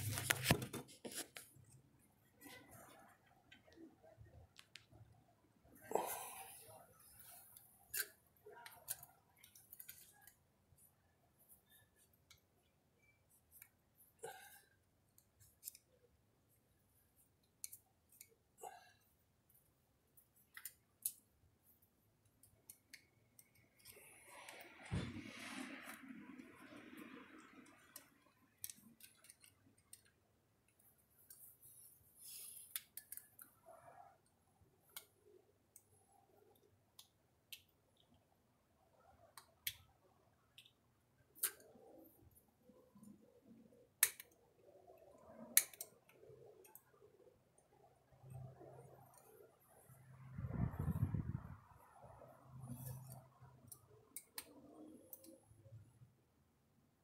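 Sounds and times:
screwdriver clicking and scraping metal: 7.2 - 10.4, 15.2 - 15.9, 27.6 - 30.2.

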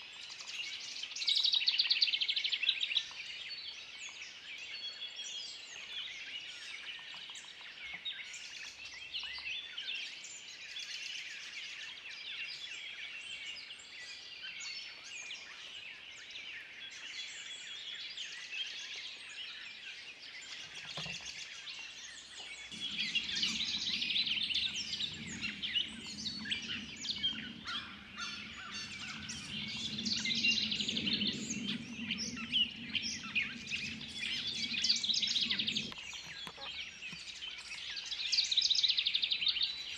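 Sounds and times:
songbirds chirping and singing: 0.0 - 39.9
steady low hum: 22.7 - 36.1.

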